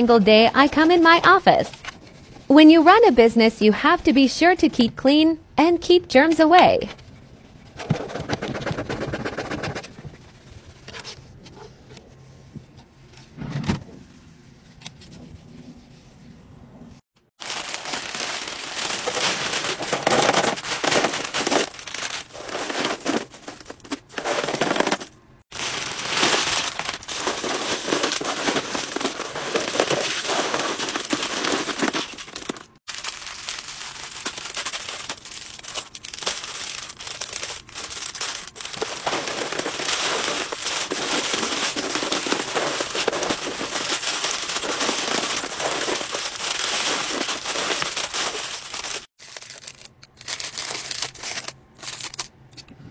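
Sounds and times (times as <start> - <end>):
plastic candy wrappers crinkling: 17.4 - 52.3.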